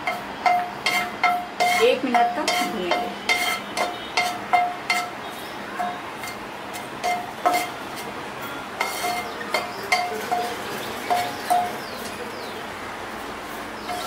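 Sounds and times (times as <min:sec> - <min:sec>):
wooden spatula knocking a frying pan: 0:00.0 - 0:05.2, 0:05.8 - 0:07.7, 0:08.8 - 0:11.9.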